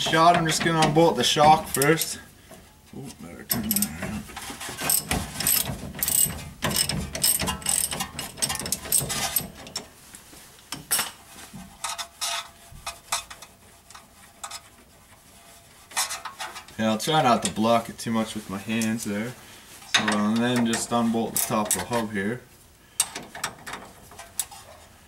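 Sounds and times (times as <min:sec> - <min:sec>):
ratchet wrench clicking: 0:04.9 - 0:09.0.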